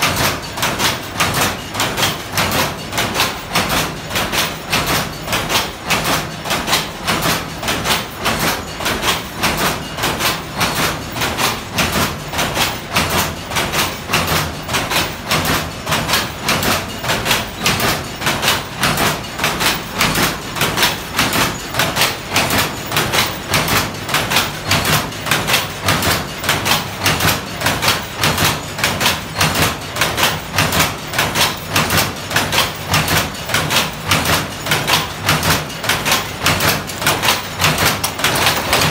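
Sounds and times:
loom beater and shuttle clattering: 0.0s - 38.9s.

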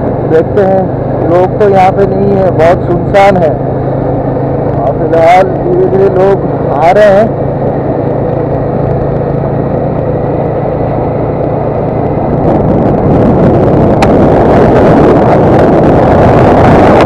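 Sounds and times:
motorcycle engine running: 0.0s - 17.0s
wind noise on microphone: 4.1s - 17.0s.

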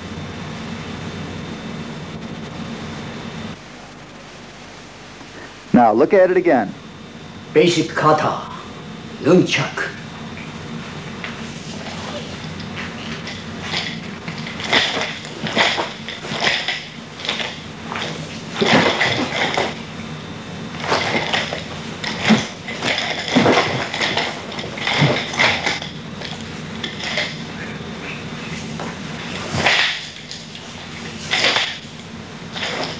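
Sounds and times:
nunchaku swishing: 29.4s - 30.3s.

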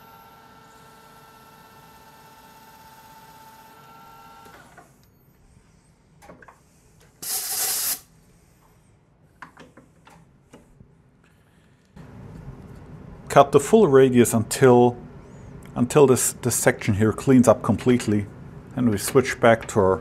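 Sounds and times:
metal lathe whining: 0.0s - 4.7s
compressed air blow gun blast: 7.2s - 8.1s.

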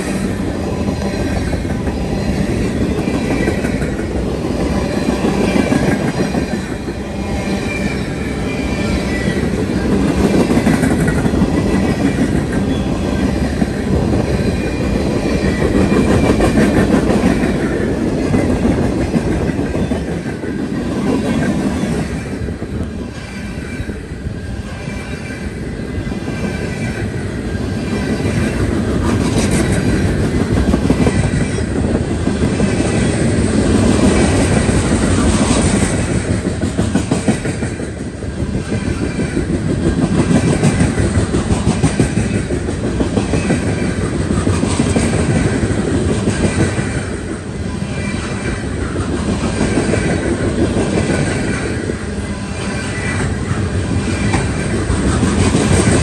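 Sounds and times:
freight train cars rolling past: 0.0s - 56.0s
high wheel squeal: 4.7s - 10.7s, 14.2s - 16.6s.

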